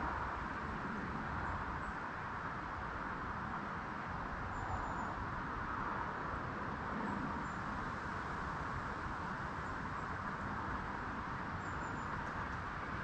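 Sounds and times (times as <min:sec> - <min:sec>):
outdoor background hiss and rumble: 0:00.0 - 0:13.0.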